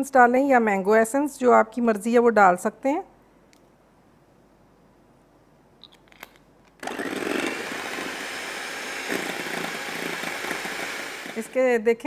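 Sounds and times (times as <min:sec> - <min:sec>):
electric hand mixer running: 0:06.8 - 0:11.6.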